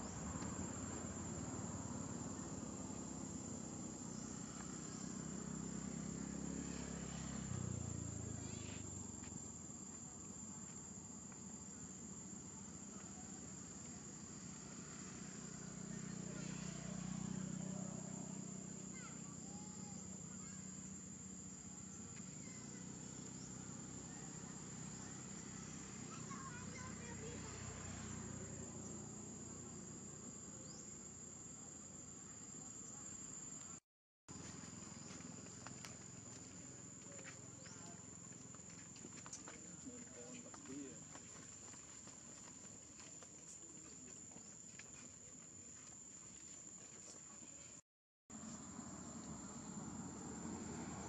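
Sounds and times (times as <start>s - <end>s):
insects droning: 0.0s - 47.8s, 48.4s - 51.0s.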